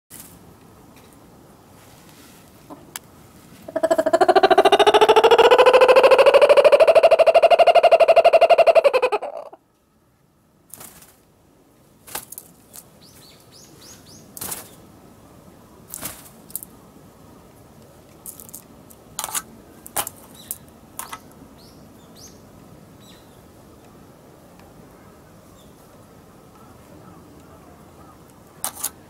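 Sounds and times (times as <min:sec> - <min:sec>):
small birds chirping: 0:12.6 - 0:14.8, 0:20.2 - 0:24.0.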